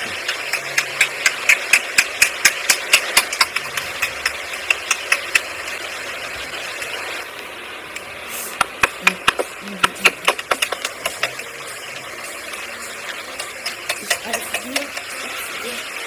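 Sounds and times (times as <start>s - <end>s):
steady hiss: 0.0s - 16.0s
rapid even clicks: 0.1s - 5.8s.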